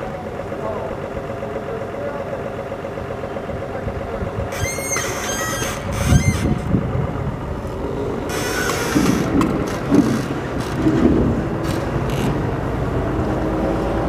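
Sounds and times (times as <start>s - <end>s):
engine idling: 0.0s - 14.0s
high-pitched metallic squeals: 4.5s - 6.6s.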